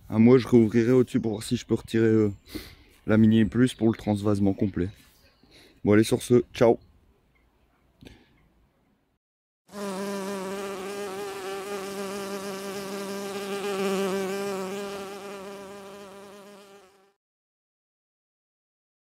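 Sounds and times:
bee buzzing: 9.7 - 17.2.

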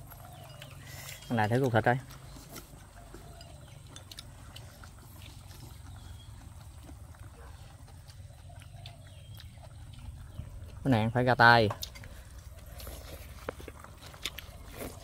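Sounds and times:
steady low rumble: 3.7 - 14.7.

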